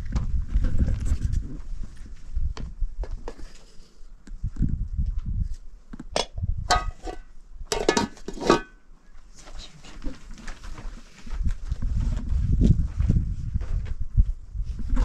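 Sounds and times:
metal cookware clattering: 6.7 - 8.8.

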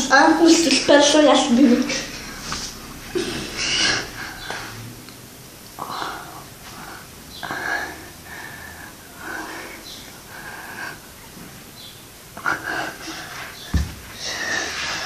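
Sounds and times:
person breathing hard: 3.1 - 4.9, 5.8 - 11.2, 12.4 - 15.0.

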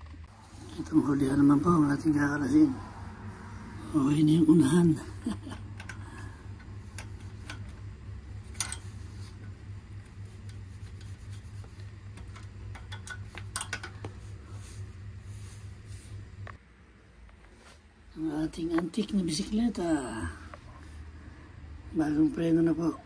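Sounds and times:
steady low hum: 0.0 - 23.0
wrench clicking on metal: 5.7 - 7.8, 8.4 - 9.6, 12.1 - 14.1.

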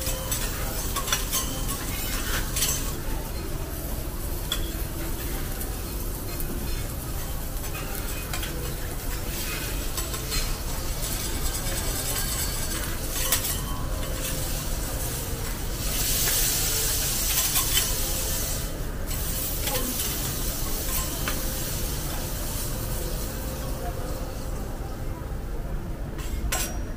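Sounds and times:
metal spatulas scraping and tapping: 0.0 - 3.4, 4.4 - 5.4, 6.3 - 18.2, 19.1 - 21.6, 26.2 - 26.9
beef sizzling on a griddle: 0.1 - 24.4.

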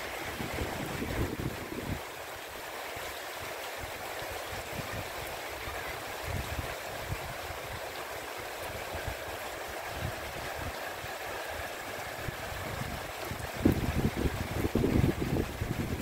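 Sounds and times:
heavy rain pouring: 0.0 - 16.0
wind buffeting microphone: 0.1 - 2.1, 4.5 - 7.8, 8.7 - 16.0.

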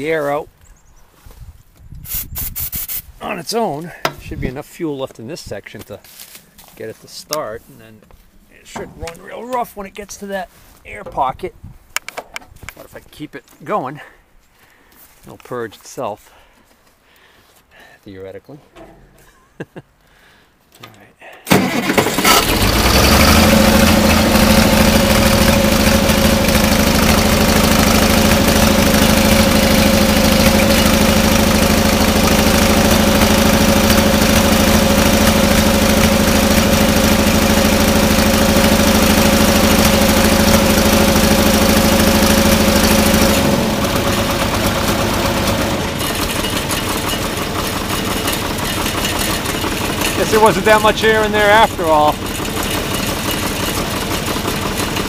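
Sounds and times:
diesel tractor engine running: 5.4 - 11.5, 18.7 - 19.4, 21.5 - 55.0.

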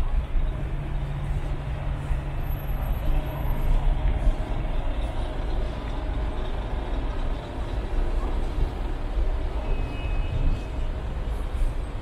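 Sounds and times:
bus engines rumbling: 0.0 - 12.0.

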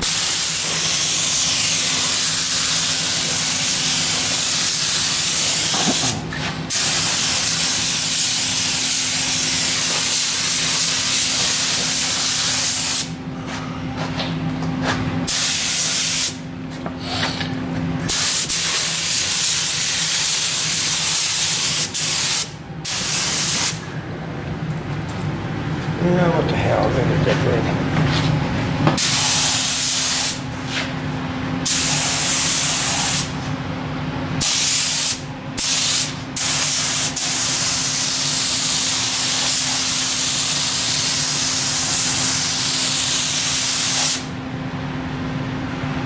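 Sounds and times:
spray gun hissing: 0.0 - 13.1, 15.3 - 16.4, 18.1 - 23.8, 29.0 - 30.4, 31.6 - 33.3, 34.4 - 44.3.

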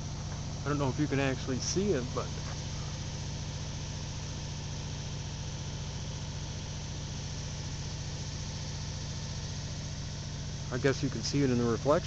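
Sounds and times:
motor humming at idle: 0.0 - 12.0.

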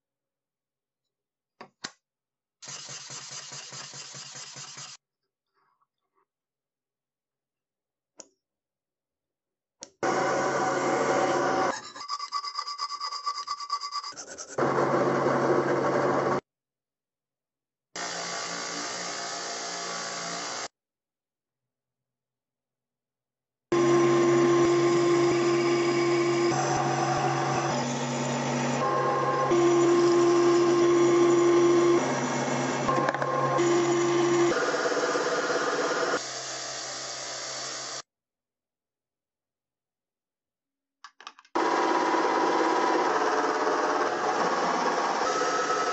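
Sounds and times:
hand file on steel: 11.7 - 14.6
metal lathe cutting: 23.8 - 36.2
loud power tool running: 23.8 - 38.0, 41.6 - 45.9.

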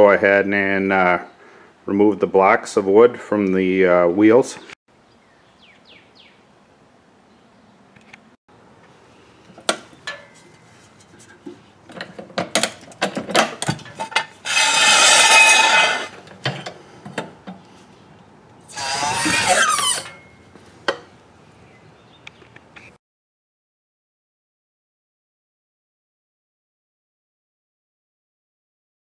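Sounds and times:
metal clanks and knocks: 9.6 - 17.6
metal scraping across concrete: 10.0 - 16.6, 18.7 - 20.5.

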